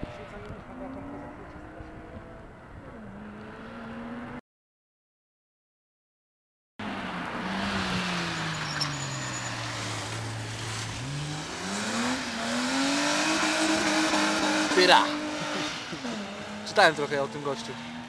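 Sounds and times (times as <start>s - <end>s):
race car engine revving: 9.6s - 18.0s.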